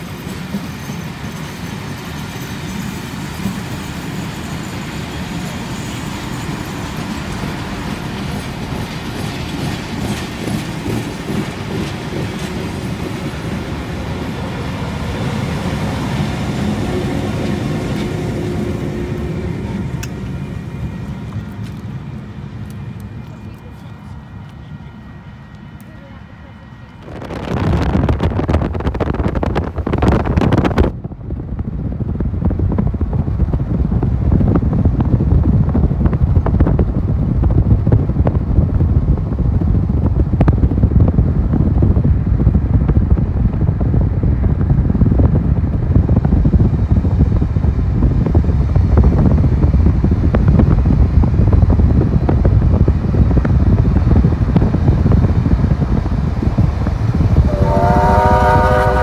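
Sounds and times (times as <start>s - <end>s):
road and wind rumble: 0.0s - 59.0s
wind buffeting microphone: 3.0s - 25.7s, 26.8s - 59.0s
train whistle: 57.4s - 59.0s.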